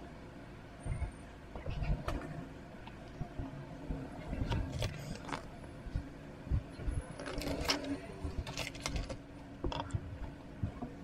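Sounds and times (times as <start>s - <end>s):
faint steady hum: 0.0s - 11.0s
plastic pieces clicking and rattling: 7.2s - 9.9s.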